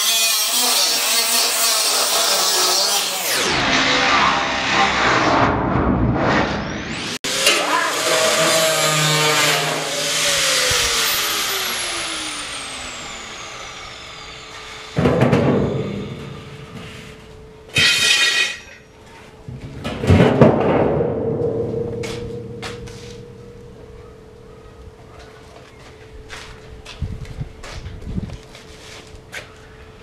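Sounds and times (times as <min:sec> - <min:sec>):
angle grinder spinning down: 0:00.0 - 0:05.3, 0:06.6 - 0:16.7
metal drum knocks and scrapes: 0:15.0 - 0:16.4, 0:19.5 - 0:24.1.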